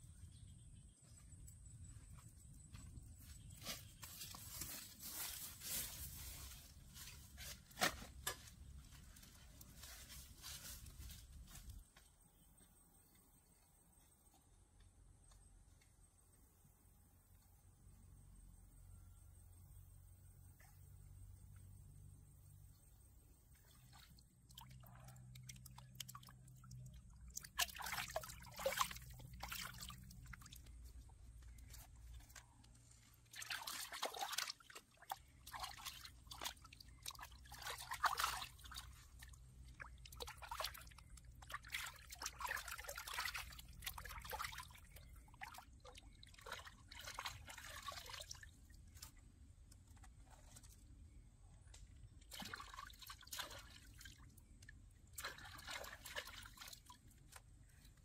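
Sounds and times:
hand splashing in pond water: 0:23.5 - 0:30.8, 0:33.2 - 0:49.2, 0:51.9 - 0:57.5.

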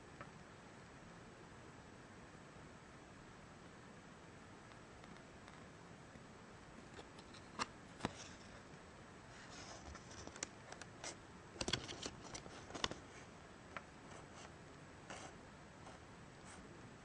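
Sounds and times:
paper rustling and crinkling: 0:09.4 - 0:10.5, 0:11.6 - 0:13.3.

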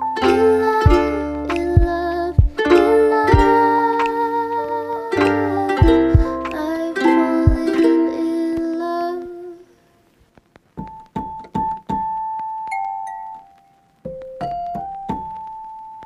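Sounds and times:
light instrumental tune: 0:00.0 - 0:08.2.

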